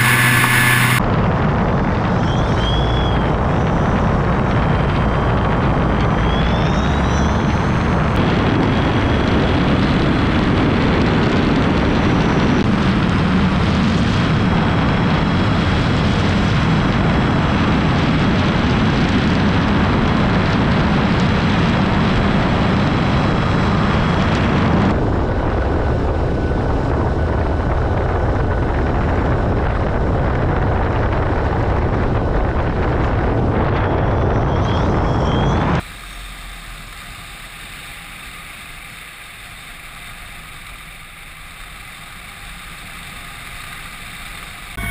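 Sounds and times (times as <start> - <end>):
high electric motor whine: 0.0 - 1.1, 33.6 - 44.9
wind rush: 0.0 - 6.5, 7.4 - 35.9
propeller drone: 0.0 - 34.4, 35.6 - 44.9.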